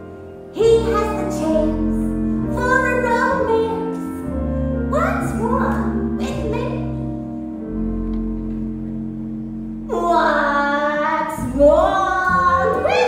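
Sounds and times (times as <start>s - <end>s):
held instrumental chord: 0.0s - 13.0s.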